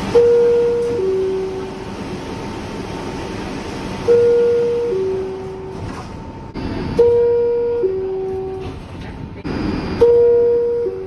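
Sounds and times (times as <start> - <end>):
train and station rumble: 0.0 - 11.0.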